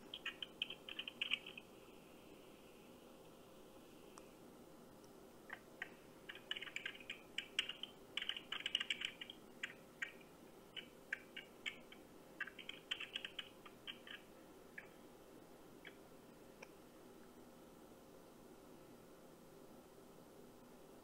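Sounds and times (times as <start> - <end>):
keyboard typing over phone speaker: 0.0 - 1.7, 5.5 - 15.0.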